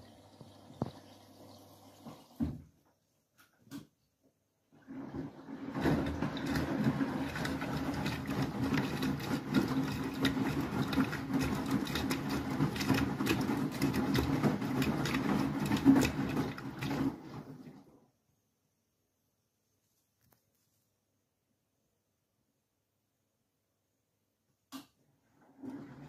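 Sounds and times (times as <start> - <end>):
washing machine motor hum: 4.7 - 18.1, 25.2 - 26.0
water sloshing and splashing: 4.8 - 17.8.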